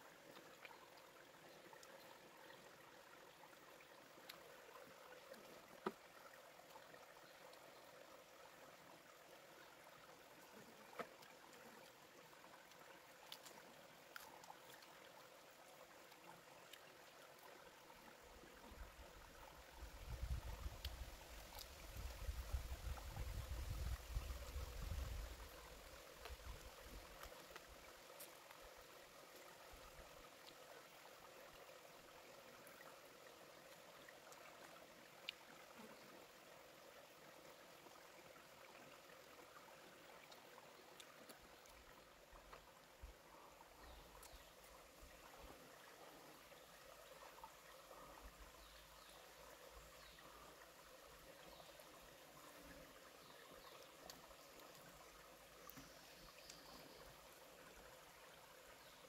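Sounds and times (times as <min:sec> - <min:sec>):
faint trickling water: 0:00.0 - 0:59.0.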